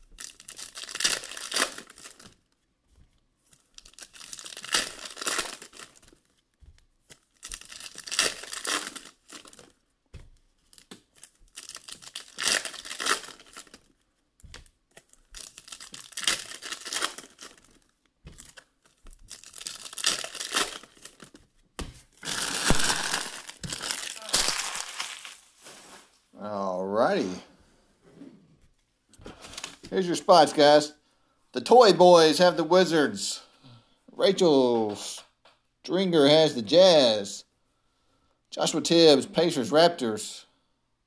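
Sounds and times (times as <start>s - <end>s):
foil packs tearing and crinkling: 0.2s - 2.4s, 3.8s - 6.3s, 7.1s - 9.7s, 10.7s - 14.0s, 14.9s - 21.4s, 22.2s - 26.1s.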